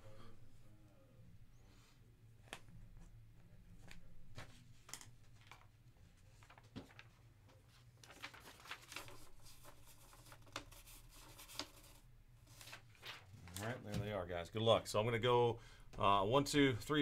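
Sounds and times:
paper sheet rustling and clicking: 3.8s - 14.0s.

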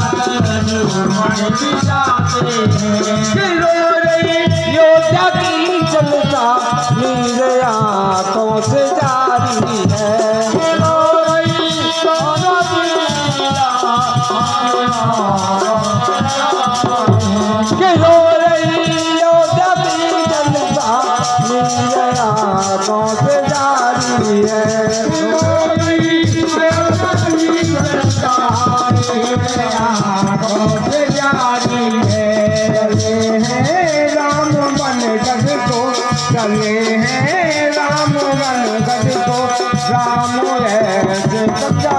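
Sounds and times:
hand drum beat: 0.0s - 41.9s
harmonium: 0.0s - 41.9s
man singing into a microphone: 0.0s - 41.9s.

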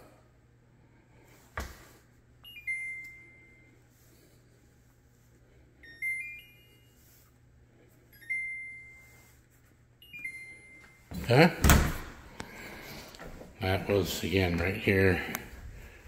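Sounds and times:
dishwasher electronic chimes: 2.4s - 3.8s, 5.8s - 7.2s, 8.1s - 9.4s, 10.0s - 12.2s.

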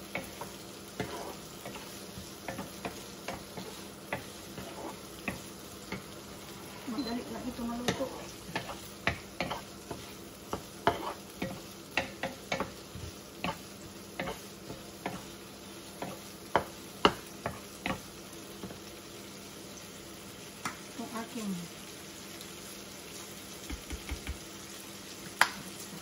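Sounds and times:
faint sizzle from pan: 0.0s - 26.0s
wooden spatula scraping pan: 0.2s - 6.1s, 7.0s - 13.6s.

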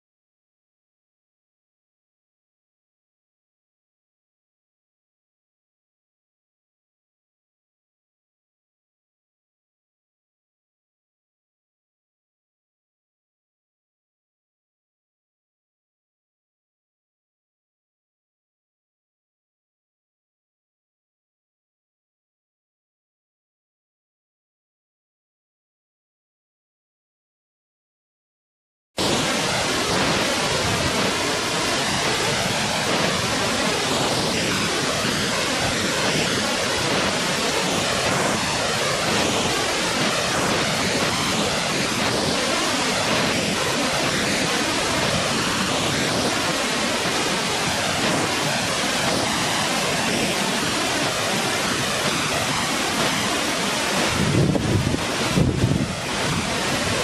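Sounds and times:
waterfall rushing: 29.0s - 57.0s.

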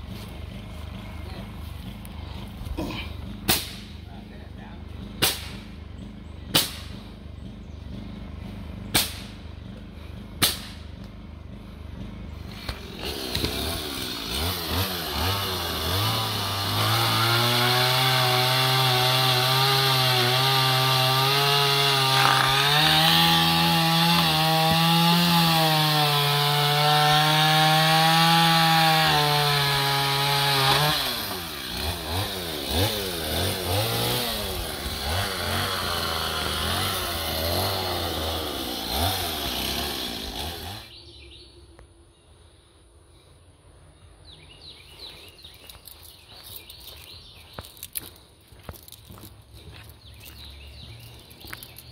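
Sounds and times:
chainsaw revving: 0.0s - 4.0s, 4.8s - 41.0s.

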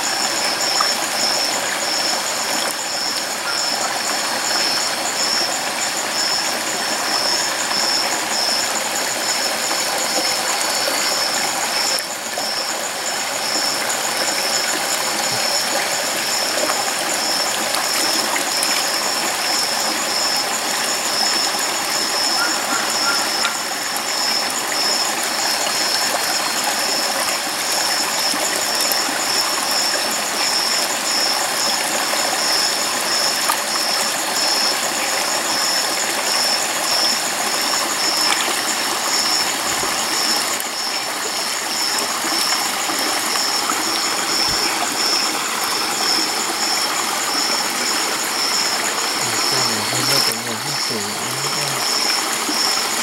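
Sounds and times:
stream running over rocks: 0.0s - 53.0s
high pulsing chirp: 45.9s - 52.8s.

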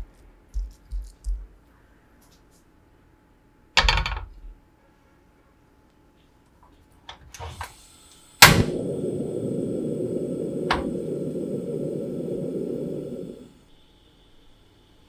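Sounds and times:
burner flame rushing: 7.5s - 13.7s
gas stove clicks: 8.4s - 12.1s
igniter snap: 8.4s - 13.5s.

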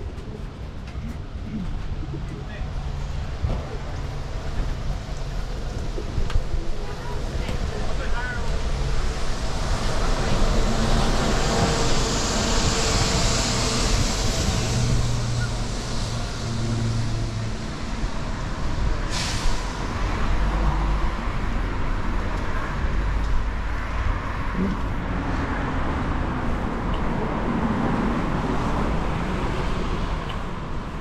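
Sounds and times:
tyres hissing on wet road: 2.9s - 31.0s
short sharp hiss: 19.1s - 19.7s.

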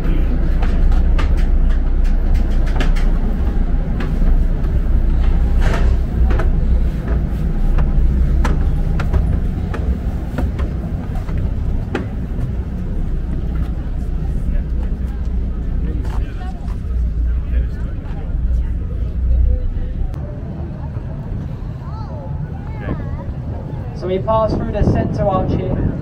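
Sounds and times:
vehicle rumbling in motion: 0.0s - 26.0s
sharp clicks and knocks: 0.4s - 12.6s.

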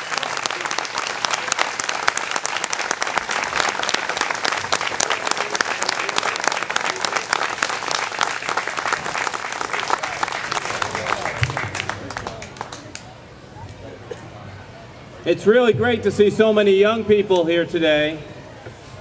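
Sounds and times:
crowd applauding: 0.0s - 13.1s.

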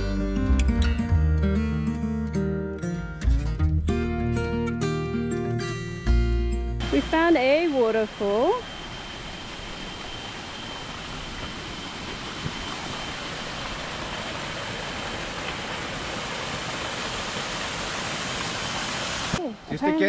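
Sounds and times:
waterfall and stream over rocks: 10.8s - 19.7s.

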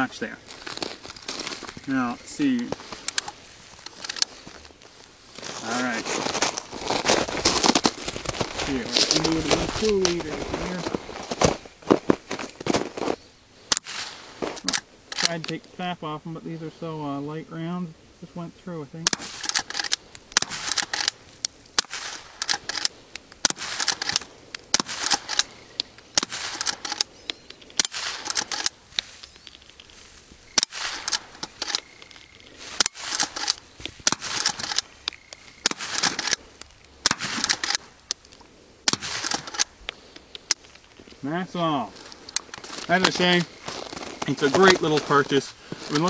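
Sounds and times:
rifle shots cracking: 13.7s - 15.4s, 19.0s - 27.1s, 27.8s - 28.8s, 30.6s - 32.0s, 32.7s - 34.9s, 35.6s - 36.4s, 37.0s - 38.0s, 38.8s - 39.8s.

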